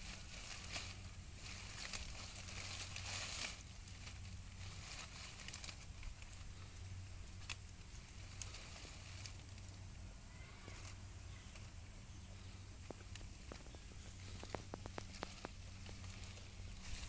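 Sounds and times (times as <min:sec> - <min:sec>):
stems snapping: 0:00.0 - 0:09.8, 0:12.8 - 0:17.0
leaves rustling: 0:00.0 - 0:17.0
low steady hum: 0:00.0 - 0:17.0.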